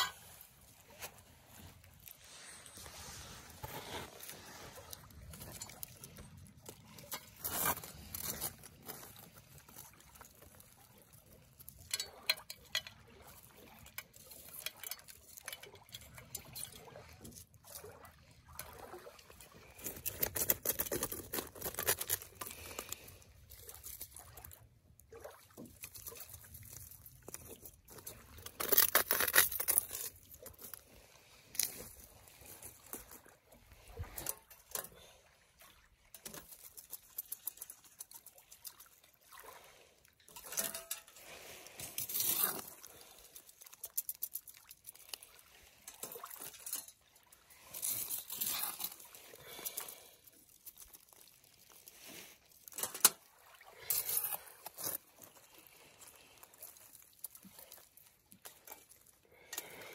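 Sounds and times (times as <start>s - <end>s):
gloved hands sifting through ash: 0.0s - 5.6s, 7.1s - 9.8s, 19.7s - 23.2s.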